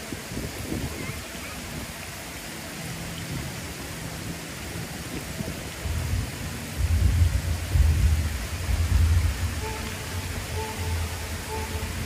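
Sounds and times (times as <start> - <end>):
low wind buffeting: 0.0 - 12.0
wind hissing on microphone: 0.0 - 12.0.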